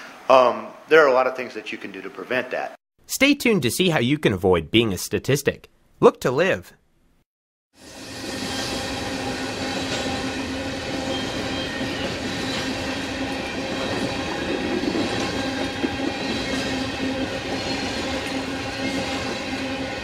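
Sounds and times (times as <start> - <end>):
train rumbling on track: 7.8 - 20.0.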